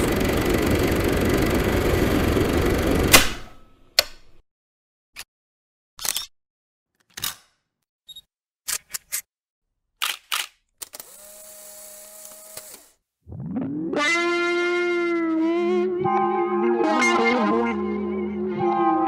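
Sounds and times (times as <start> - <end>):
camera shutter clicks: 10.0 - 12.9.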